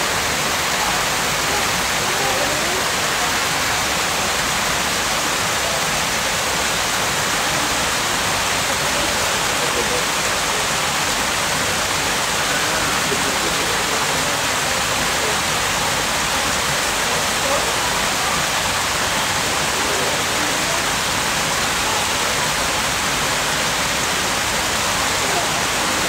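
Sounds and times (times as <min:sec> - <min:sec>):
water rushing over rocks: 0:00.0 - 0:26.0.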